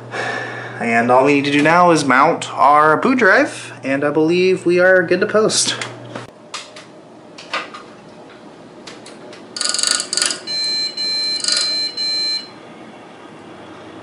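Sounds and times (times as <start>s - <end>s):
short high-pitched beeps: 9.6s - 12.5s.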